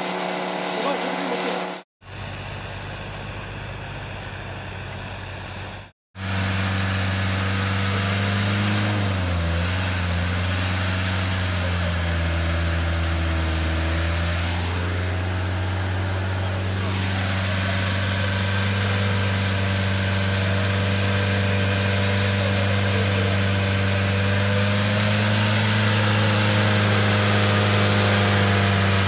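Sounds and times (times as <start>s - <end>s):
vehicle engine running steadily: 0.0s - 29.0s
off-road vehicle driving: 2.0s - 29.0s.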